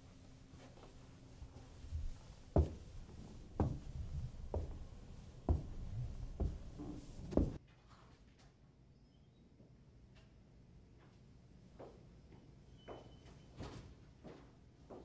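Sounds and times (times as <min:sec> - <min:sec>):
heavy footsteps on carpeted stairs: 0:00.5 - 0:07.6.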